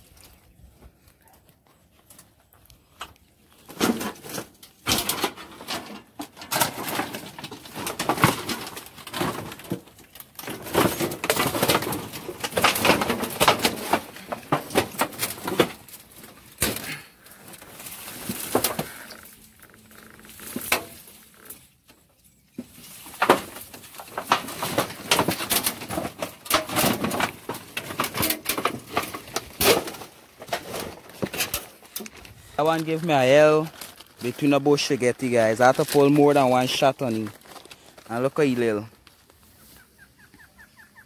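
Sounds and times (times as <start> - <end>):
junk clattering and rustling: 3.5 - 39.4.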